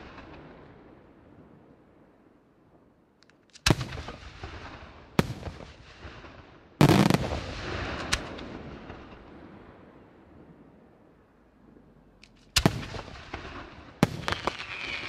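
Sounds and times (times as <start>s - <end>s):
firework shells bursting: 12.2s - 15.0s.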